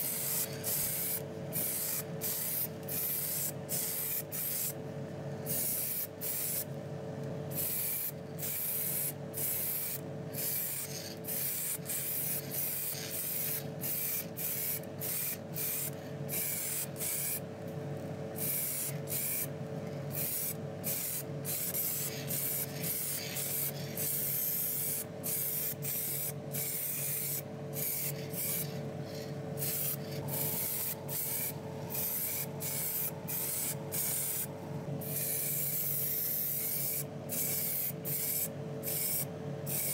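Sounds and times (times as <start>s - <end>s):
steady hum: 0.0s - 39.9s
paint spraying in hissing bursts: 20.2s - 34.5s, 35.1s - 39.9s.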